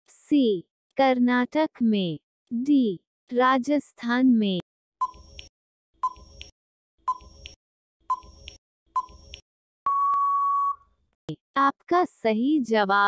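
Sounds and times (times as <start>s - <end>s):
long time-up beep: 9.9s - 10.8s
short countdown beeps: 9.9s - 10.8s.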